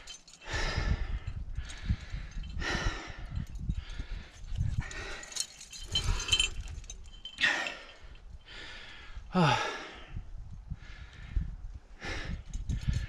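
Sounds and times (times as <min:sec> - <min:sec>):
voiced sigh: 0:07.4 - 0:10.2.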